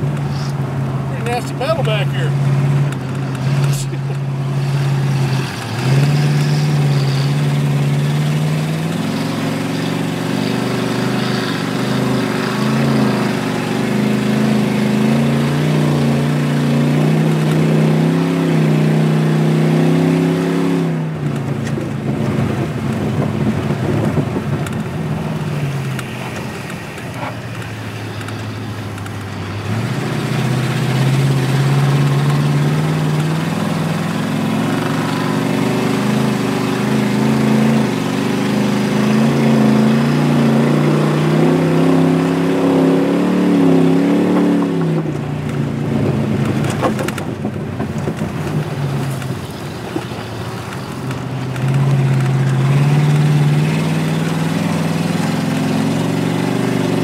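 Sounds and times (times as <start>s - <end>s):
car engine running: 0.0s - 57.0s
rough rumble: 43.1s - 57.0s.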